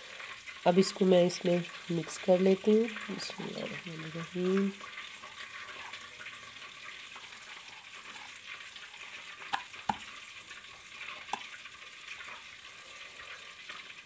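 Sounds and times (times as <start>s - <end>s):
fingers clicking against glass bowl: 9.5s - 10.0s.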